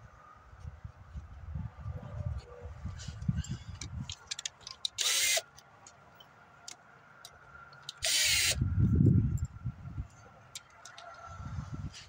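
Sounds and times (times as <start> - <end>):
cordless drill whining: 5.0 - 5.4, 8.0 - 8.6.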